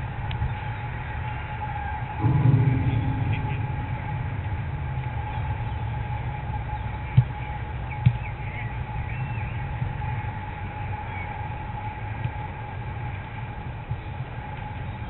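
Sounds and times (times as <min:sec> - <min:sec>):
low outdoor rumble: 0:00.0 - 0:15.0
drone falling in pitch: 0:02.2 - 0:07.0.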